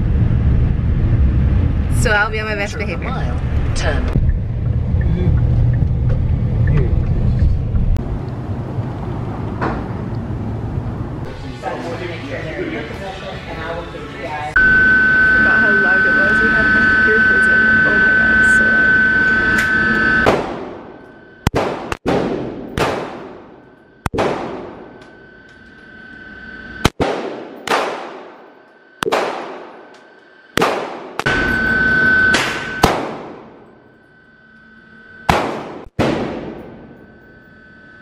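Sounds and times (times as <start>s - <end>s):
gunshots echoing indoors: 20.2s - 25.1s, 26.8s - 31.5s, 32.3s - 33.7s, 35.3s - 37.0s.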